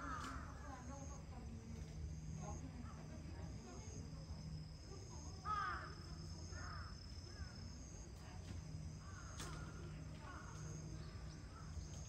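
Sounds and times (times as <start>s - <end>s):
crow cawing: 5.4s - 6.0s, 9.0s - 10.5s.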